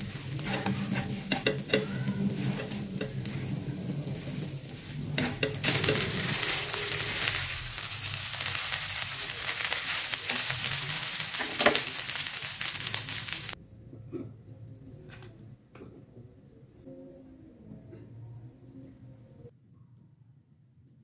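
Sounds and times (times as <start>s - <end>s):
rice sizzling in a wok: 0.0s - 13.6s
spatula scraping and knocking pan: 0.0s - 13.6s.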